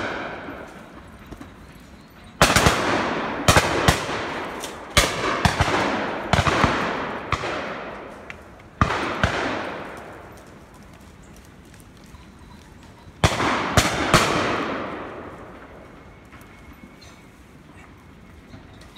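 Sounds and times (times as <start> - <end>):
shotguns firing: 0.0 - 0.7, 2.4 - 10.3, 13.2 - 15.3.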